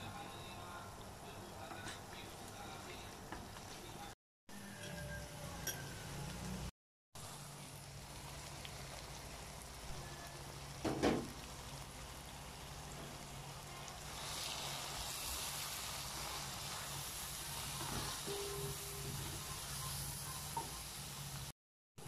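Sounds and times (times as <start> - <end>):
spice paste sizzling in oil: 5.8 - 21.5
knock: 10.8 - 11.3.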